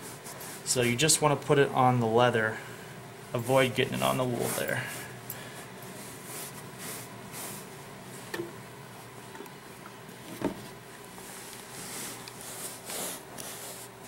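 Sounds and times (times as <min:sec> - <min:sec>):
rag rubbing leather: 0:03.4 - 0:05.0, 0:11.3 - 0:14.0.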